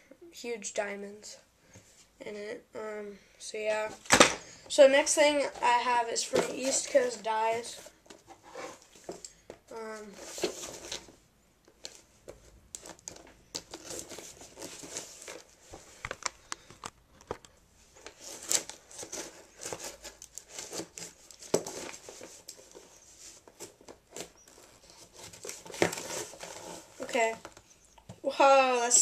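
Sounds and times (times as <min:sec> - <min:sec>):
cardboard scraping and crinkling: 0:05.0 - 0:09.2, 0:10.0 - 0:11.2, 0:11.8 - 0:16.1, 0:18.0 - 0:27.7
tape tearing: 0:18.1 - 0:22.8, 0:23.5 - 0:27.6.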